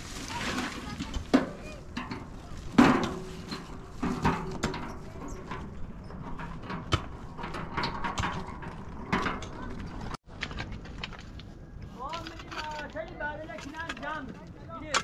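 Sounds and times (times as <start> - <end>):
metal wheelbarrow being tipped: 0.0 - 10.2
loose stones clattering: 0.0 - 15.0.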